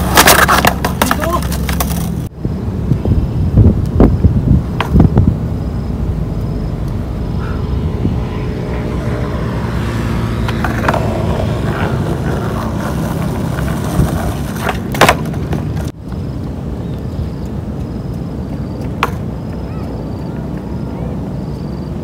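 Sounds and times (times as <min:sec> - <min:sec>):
skateboard clacking: 0:00.0 - 0:02.3, 0:04.7 - 0:05.0, 0:10.4 - 0:15.9, 0:18.5 - 0:20.7
skateboard wheels rolling on concrete: 0:00.0 - 0:22.0.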